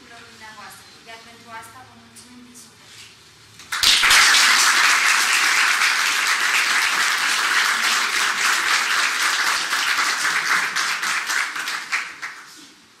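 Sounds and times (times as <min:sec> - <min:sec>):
audience applauding: 0:03.7 - 0:12.6.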